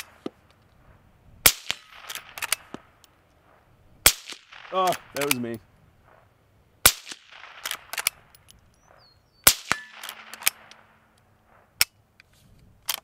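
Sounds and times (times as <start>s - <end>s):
suppressed rifle shots: 1.4s - 6.2s, 6.8s - 11.9s
rifle lever clicks: 2.0s - 3.2s, 7.6s - 9.0s, 9.7s - 13.0s.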